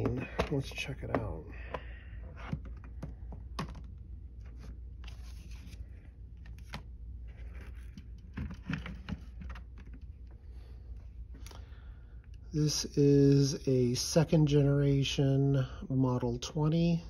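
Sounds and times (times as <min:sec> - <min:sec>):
low steady hum: 0:00.0 - 0:17.0
paper rustling and sliding: 0:04.4 - 0:10.0.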